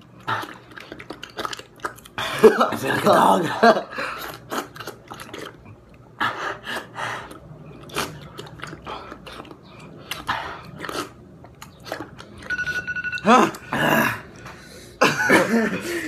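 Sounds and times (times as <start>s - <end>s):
licking and slurping water: 0.0s - 3.1s, 4.0s - 12.5s.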